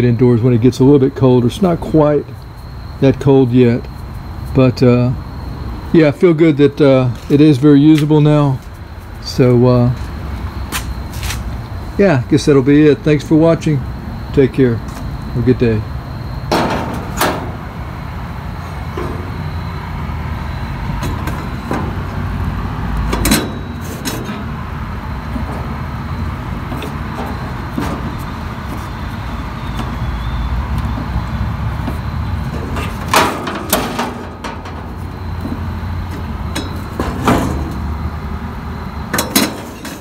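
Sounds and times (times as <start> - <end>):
metal knocks and clicks: 16.5 - 17.7, 20.9 - 22.4, 23.0 - 24.6, 31.8 - 37.8, 39.1 - 40.0.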